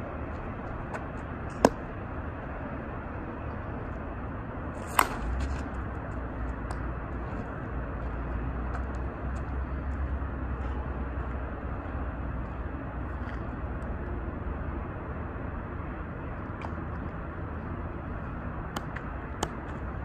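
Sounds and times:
low steady rumble: 0.0s - 20.0s
bat striking softball: 1.5s - 1.9s, 4.8s - 5.4s, 18.7s - 19.6s.

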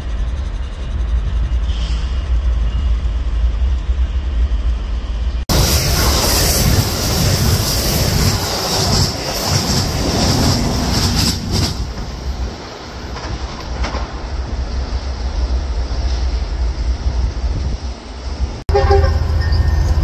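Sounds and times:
train wheels hissing on rails: 0.0s - 3.4s, 5.5s - 18.6s
rail clicks: 5.5s - 20.0s.

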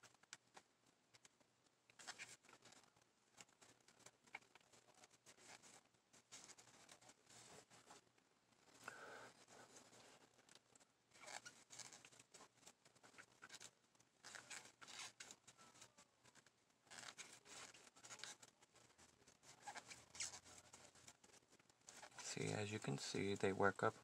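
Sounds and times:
yarn rustling with crochet hook: 0.0s - 24.0s.

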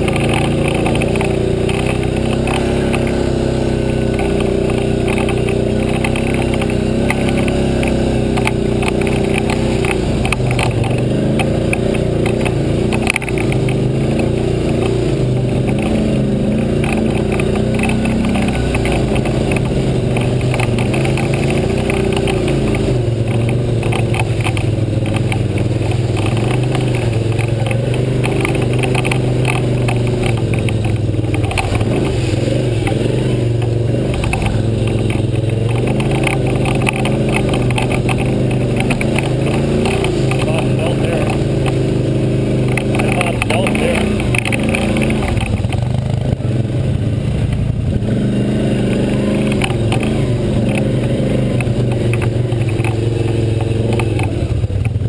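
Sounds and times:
atv engine revving: 0.0s - 55.0s
rattle from bumps: 0.0s - 55.0s.

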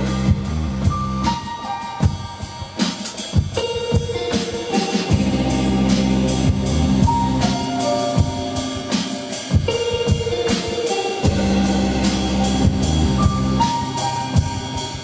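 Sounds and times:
low bass notes: 0.0s - 1.4s, 5.1s - 8.8s, 11.2s - 15.0s
drum hits: 0.0s - 15.0s
live band playing: 0.0s - 15.0s.

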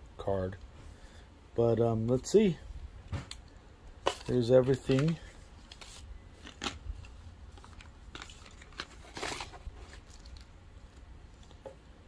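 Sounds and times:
paper and cardboard rustling: 4.0s - 11.6s.

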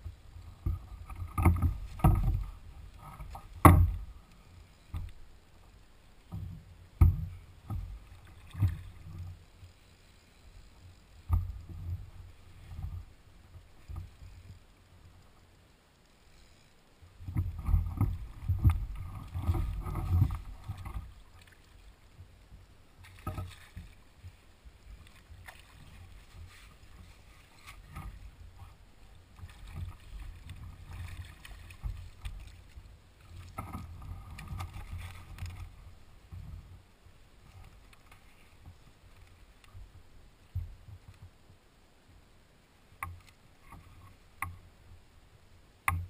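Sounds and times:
water sloshing and splashing: 0.6s - 4.4s, 6.3s - 9.5s, 17.2s - 36.8s.

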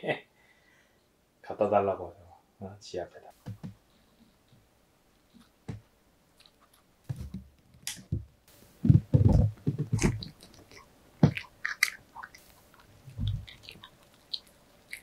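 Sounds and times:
dog chewing wetly: 9.9s - 15.0s.

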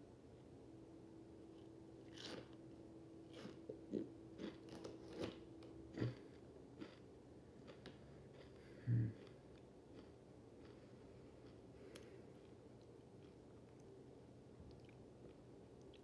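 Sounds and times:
person chewing crunchy snack: 1.6s - 2.6s, 3.3s - 13.5s.

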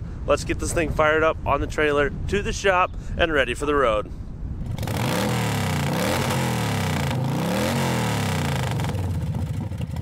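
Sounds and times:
engine revving: 4.6s - 10.0s.

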